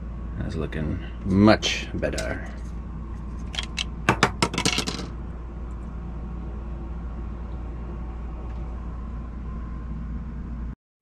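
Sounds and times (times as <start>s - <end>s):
low mechanical hum: 0.0s - 10.8s
clicks and rattles of metal hardware: 3.4s - 5.1s.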